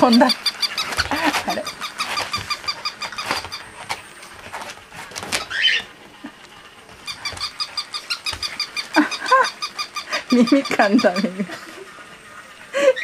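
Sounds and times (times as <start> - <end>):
toy dog chirping: 0.0 - 3.8, 7.0 - 11.3
dog squealing: 0.0 - 4.0, 5.2 - 5.9, 7.0 - 11.2.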